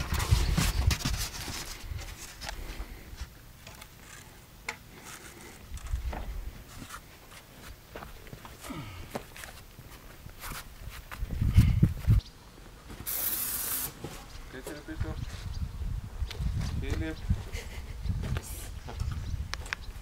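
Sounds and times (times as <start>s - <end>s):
footsteps on concrete: 6.0s - 13.1s, 18.2s - 19.0s.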